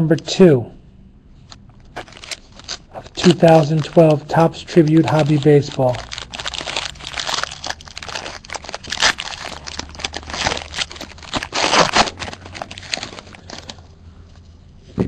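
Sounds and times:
foil card pack tearing: 1.9 - 13.8.

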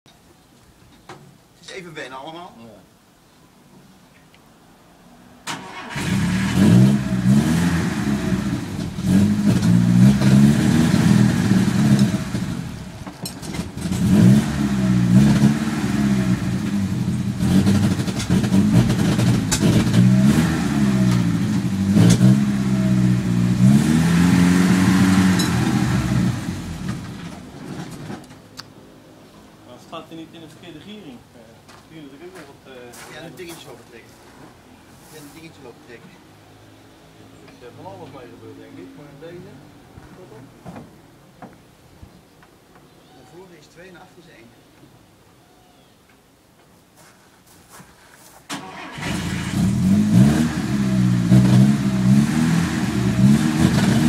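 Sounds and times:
tracked vehicle engine revving: 5.4 - 28.2, 48.5 - 54.0.

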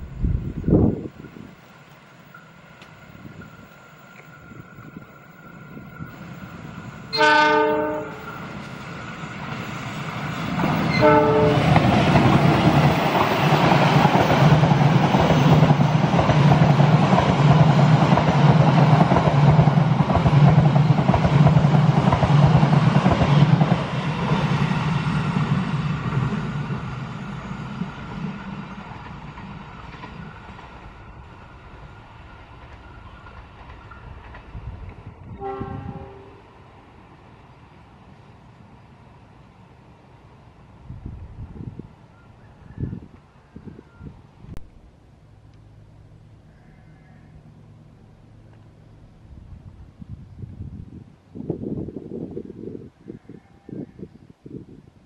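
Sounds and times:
train wheels clattering on rails: 2.2 - 35.7
locomotive horn blasts: 7.1 - 8.3, 10.9 - 11.8, 35.3 - 36.4
locomotive engine drone: 43.8 - 46.6, 47.3 - 50.1.

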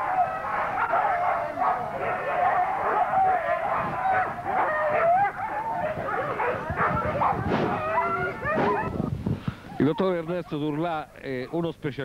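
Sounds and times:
dogs barking and yelping: 0.0 - 9.1.

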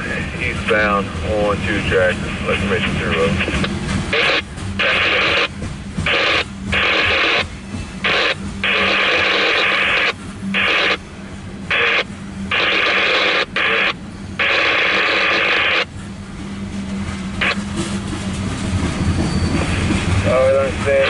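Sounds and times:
rumble of passing rail cars: 0.0 - 21.0
radio static bursts: 2.0 - 5.5, 6.1 - 11.0, 11.7 - 15.9.

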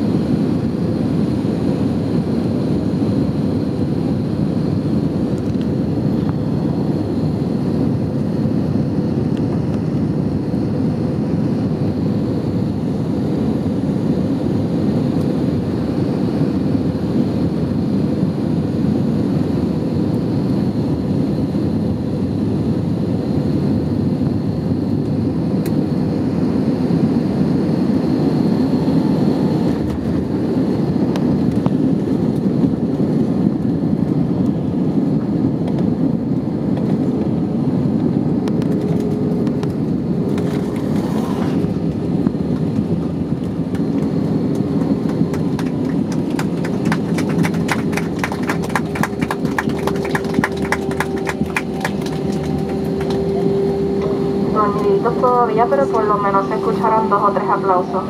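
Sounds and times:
aircraft taxiing rumble in cabin: 0.0 - 58.0
faint high whine: 46.6 - 58.0.

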